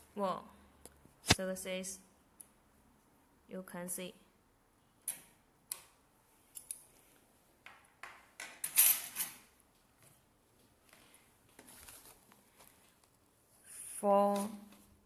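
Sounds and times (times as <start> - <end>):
metal tools clicking and clinking: 8.6 - 9.5
soft rustling: 9.8 - 15.0.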